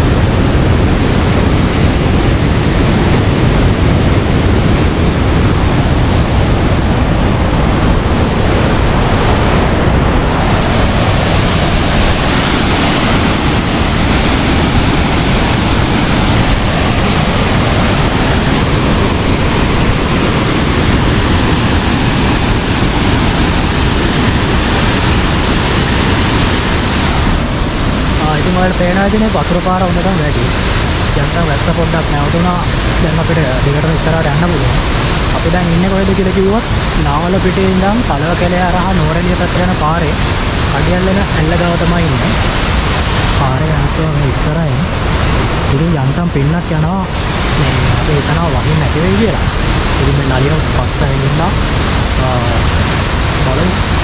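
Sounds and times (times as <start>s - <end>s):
waterfall and river roaring: 0.0s - 54.0s.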